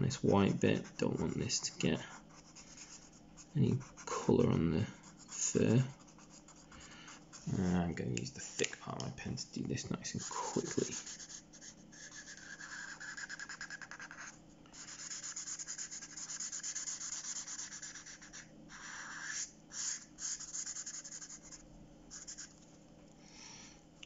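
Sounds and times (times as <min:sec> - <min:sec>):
marker pen scrubbing on paper: 0:00.0 - 0:07.8, 0:10.0 - 0:22.6.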